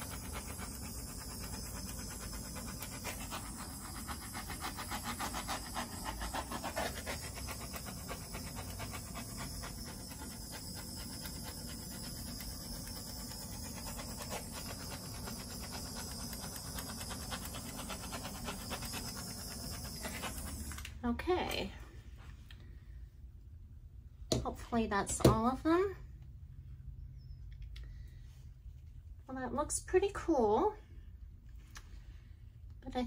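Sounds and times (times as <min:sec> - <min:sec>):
gas torch flame hissing: 0:00.0 - 0:21.0.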